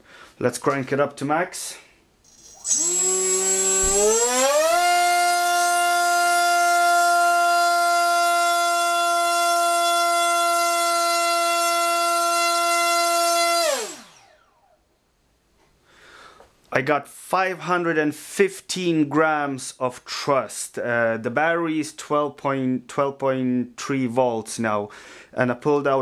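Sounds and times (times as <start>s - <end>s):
electric motor and propeller whine: 2.3s - 14.7s.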